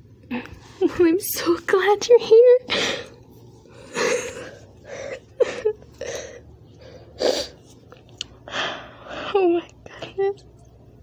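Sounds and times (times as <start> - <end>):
person crying: 3.8 - 6.4.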